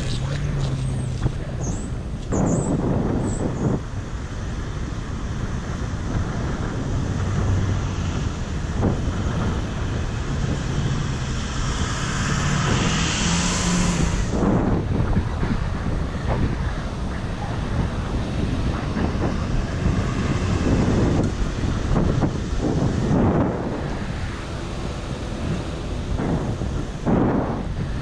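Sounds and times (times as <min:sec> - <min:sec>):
road traffic passing: 0:00.0 - 0:28.0
vehicle hum: 0:00.0 - 0:28.0
wind on microphone: 0:00.0 - 0:28.0
passing vehicle hiss: 0:04.2 - 0:14.8.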